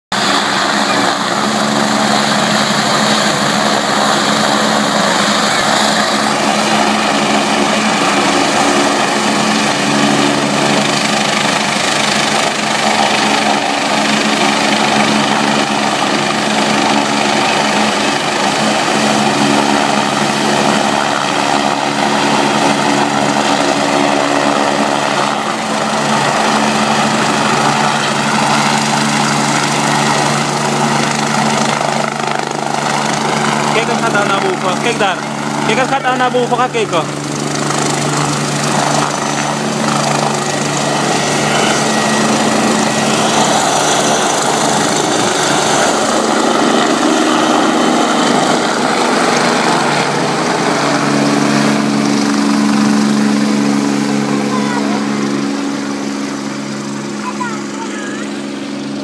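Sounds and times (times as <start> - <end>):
helicopter engine whine: 0.1 - 59.0
low rotor hum: 0.1 - 59.0
higher whine: 37.8 - 48.4.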